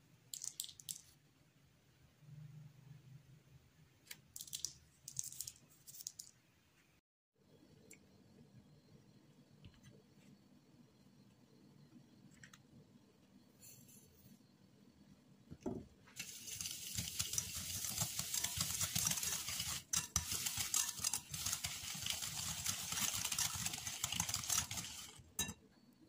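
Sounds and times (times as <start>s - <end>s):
wire whisk scraping a ceramic bowl: 16.2s - 25.6s.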